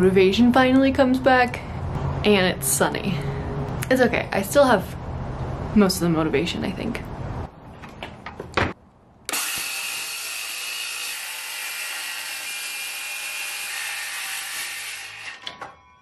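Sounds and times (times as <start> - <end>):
circular saw cutting plywood: 9.3 - 15.6
knocks of handling saw and board: 14.7 - 15.8.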